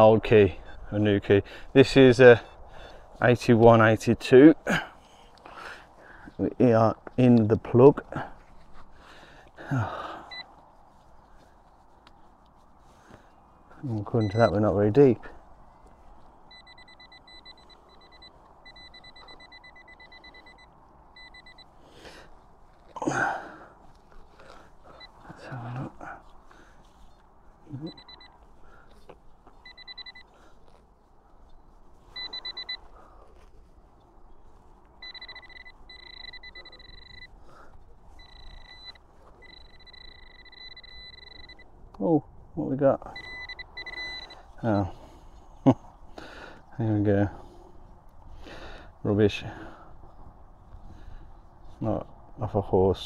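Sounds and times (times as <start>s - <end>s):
pinpointer high alert tone: 14.2s - 14.8s, 16.5s - 21.7s, 27.7s - 28.4s, 29.6s - 30.3s, 32.2s - 32.8s, 35.0s - 37.4s, 38.2s - 41.7s, 43.1s - 45.1s
high-pitched rapid beeping: 35.0s - 37.3s, 38.2s - 41.6s, 43.2s - 44.4s.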